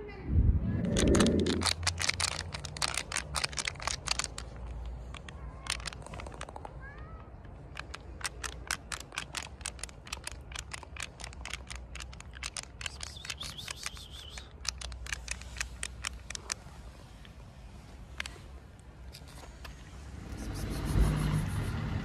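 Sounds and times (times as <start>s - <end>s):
rapid sharp clicks: 0.9s - 6.8s, 7.4s - 16.6s.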